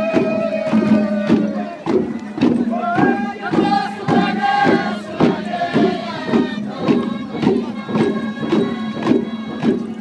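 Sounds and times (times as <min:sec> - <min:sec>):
group singing in unison: 0:00.0 - 0:10.0
steady drum beat: 0:00.0 - 0:10.0.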